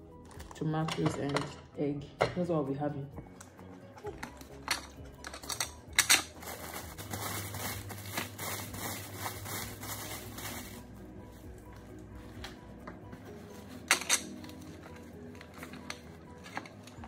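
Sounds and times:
plastic bag crinkling: 0:06.3 - 0:10.8.

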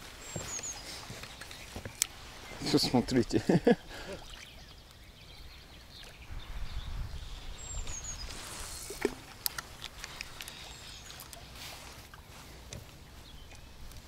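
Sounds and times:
bird chirp: 0:00.2 - 0:08.9, 0:13.0 - 0:13.9.

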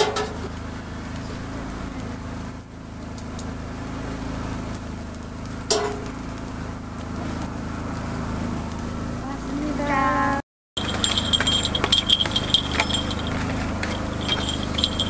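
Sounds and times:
sharp clink: 0:10.8 - 0:15.0.

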